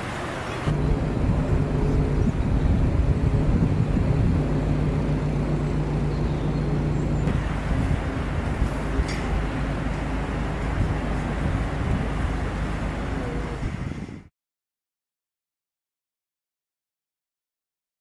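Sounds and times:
engine humming: 0.0 - 14.3.

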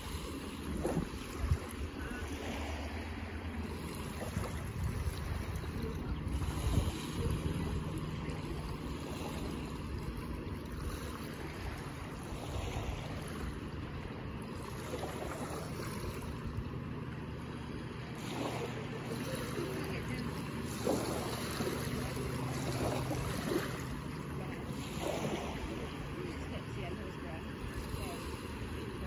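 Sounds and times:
wind buffeting microphone: 0.0 - 2.3, 3.2 - 29.0
small waves lapping on shore: 0.0 - 29.0.

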